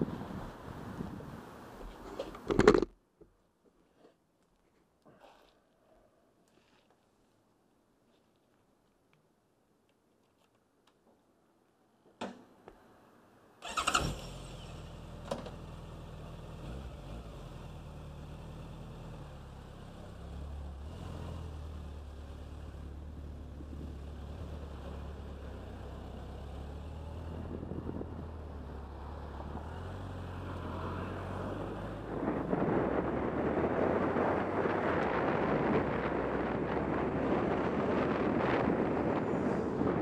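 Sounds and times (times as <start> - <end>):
wind rushing on microphone: 0.0 - 2.0, 27.2 - 28.6, 31.5 - 40.0
motorcycle engine starting and idling: 13.6 - 28.8.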